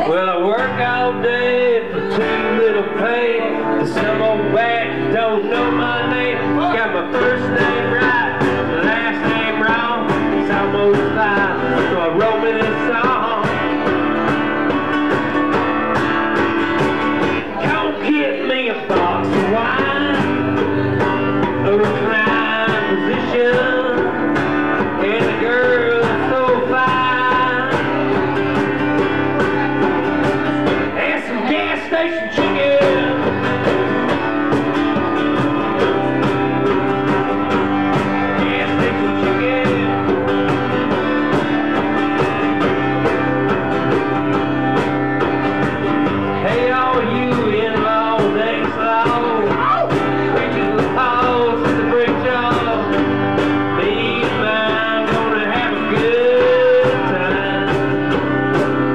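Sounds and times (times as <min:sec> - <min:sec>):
strummed acoustic guitar: 0:00.0 - 0:58.9
hand drum beat: 0:03.8 - 0:18.1, 0:18.9 - 0:58.9.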